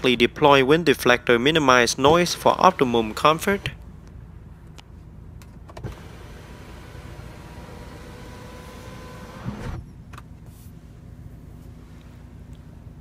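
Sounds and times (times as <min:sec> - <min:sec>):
sunroof motor whining: 0:02.0 - 0:03.8, 0:05.7 - 0:10.0.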